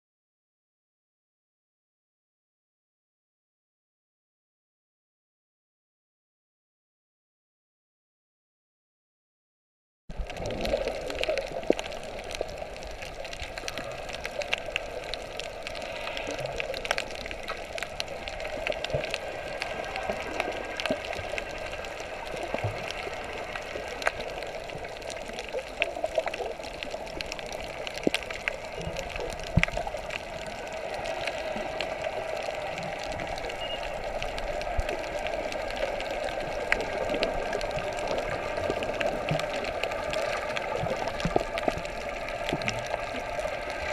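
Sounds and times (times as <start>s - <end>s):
muffled underwater rush: 10.1s - 43.9s
underwater clicks and crackles: 10.1s - 43.9s.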